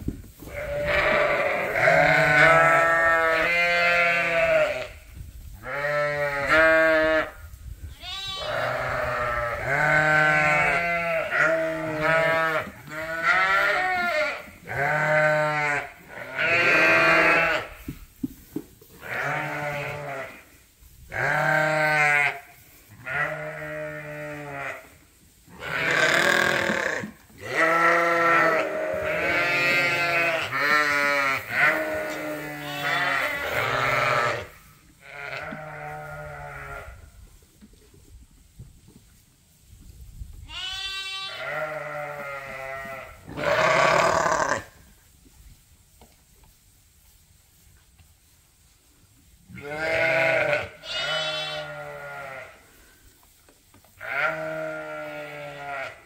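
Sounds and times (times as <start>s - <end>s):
sheep and lambs bleating: 0.4s - 5.0s, 5.6s - 17.8s, 19.0s - 20.5s, 21.1s - 37.1s, 40.4s - 44.8s, 49.5s - 52.7s, 54.0s - 56.0s.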